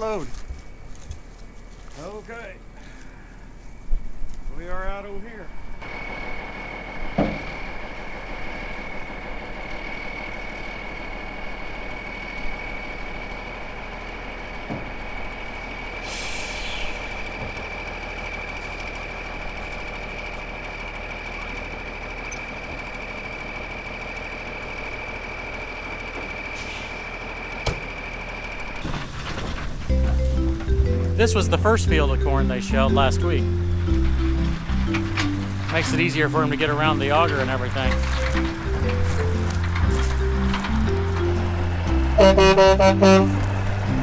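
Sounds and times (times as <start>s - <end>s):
tractor driving grain auger: 0.0s - 3.8s, 4.5s - 44.0s
constant high whine: 0.0s - 44.0s
truck engine running: 0.0s - 44.0s
brief hiss: 16.0s - 17.1s.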